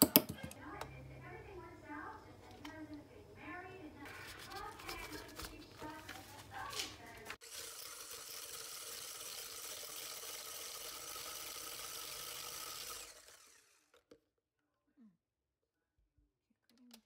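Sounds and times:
electric hand blender whirring: 7.4s - 14.1s.

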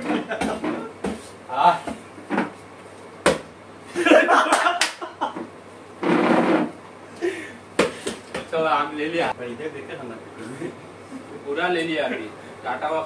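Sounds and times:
men laughing: 0.0s - 1.0s, 3.9s - 5.5s
men talking: 8.4s - 13.0s.

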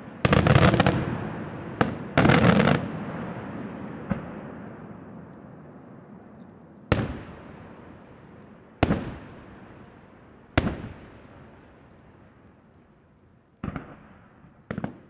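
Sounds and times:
faint crackles: 0.0s - 15.0s.

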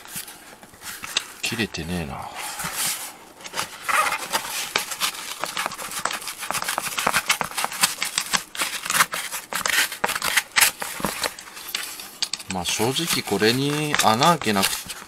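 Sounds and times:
utility knife scraping plastic cover: 3.5s - 15.0s.

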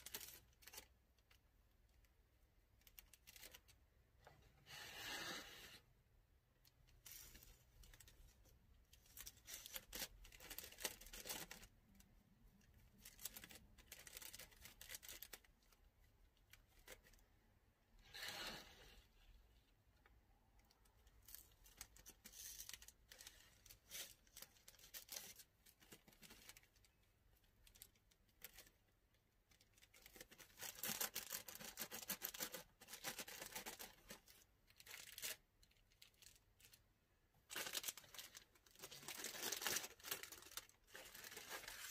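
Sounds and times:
plastic bag crinkling: 7.0s - 15.8s, 29.5s - 36.8s, 37.4s - 41.9s.

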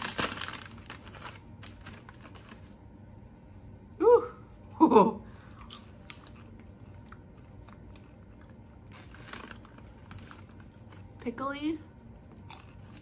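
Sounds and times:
person chewing popcorn: 5.5s - 11.2s, 12.2s - 13.0s.

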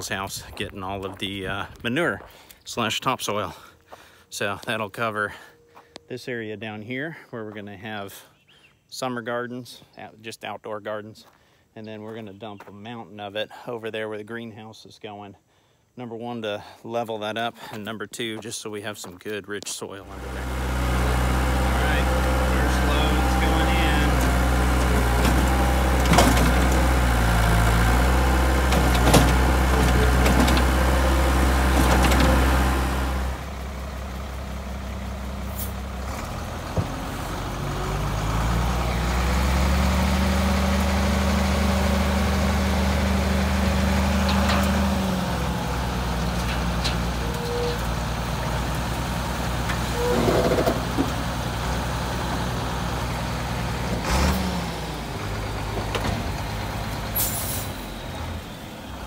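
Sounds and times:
skid steer engine running: 20.0s - 59.0s
truck engine revving: 20.0s - 59.0s.

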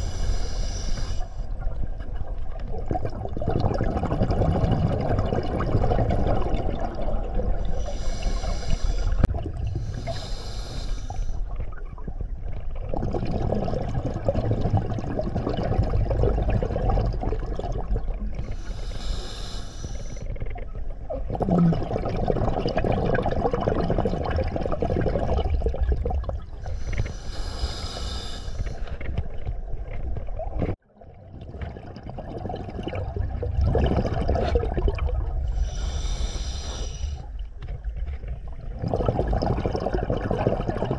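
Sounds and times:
low rumble of water: 0.0s - 40.9s
exhaled bubbles rushing: 1.6s - 10.0s, 11.5s - 18.6s, 20.6s - 27.1s, 29.0s - 36.0s, 37.3s - 40.9s.

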